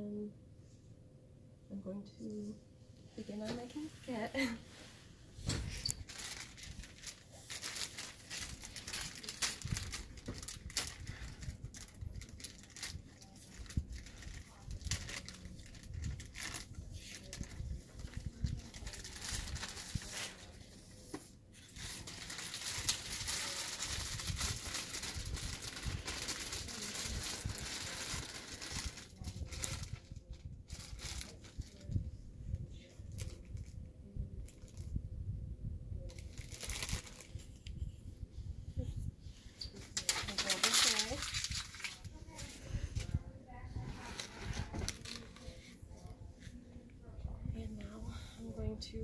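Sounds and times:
plastic wrapping crinkling and tearing: 5.5s - 21.0s, 21.6s - 32.0s, 36.0s - 37.8s, 39.6s - 43.2s, 44.0s - 46.0s.

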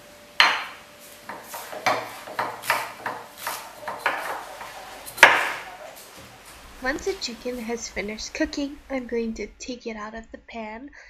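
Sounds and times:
knife chopping celery on wooden board: 0.4s - 5.8s.

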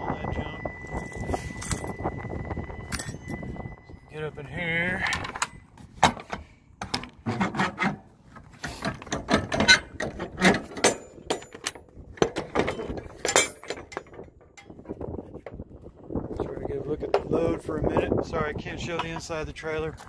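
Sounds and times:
metal clanks and scrapes of door: 5.0s - 15.0s.

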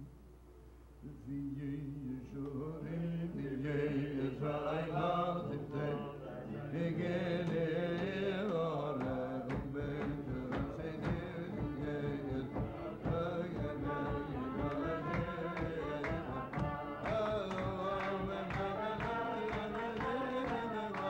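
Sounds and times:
man singing: 1.0s - 21.0s
sharp rhythmic beats: 7.0s - 21.0s.

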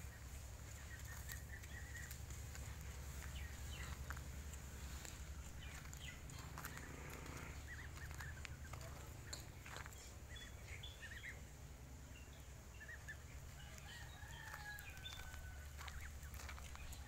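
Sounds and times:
fowl chirping: 0.0s - 11.5s, 12.2s - 17.0s
rooster crowing: 13.5s - 16.0s.

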